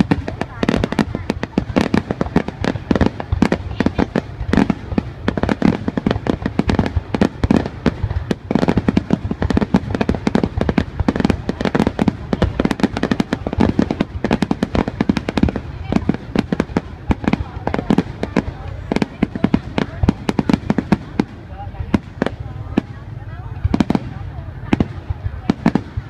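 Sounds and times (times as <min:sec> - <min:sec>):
fireworks bursting with loud bangs: 0:00.0 - 0:26.0.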